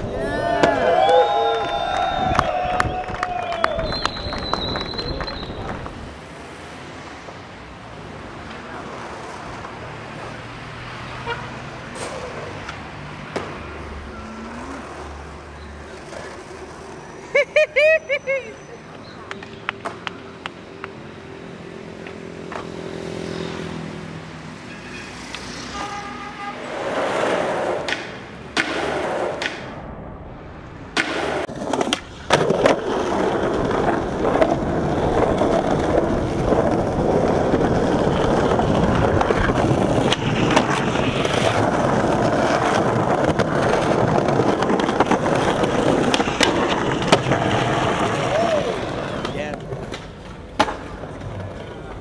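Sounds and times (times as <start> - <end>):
skateboard wheels rolling on pavement: 0.0 - 52.0
skateboard clacking on ground: 15.8 - 17.0, 19.0 - 21.0, 26.7 - 29.8, 30.9 - 52.0.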